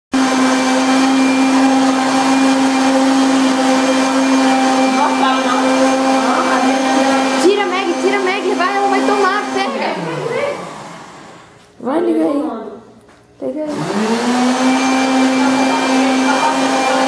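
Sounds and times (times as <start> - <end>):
blender motor running: 0.1 - 11.6, 13.7 - 17.0
person speaking: 4.8 - 10.8.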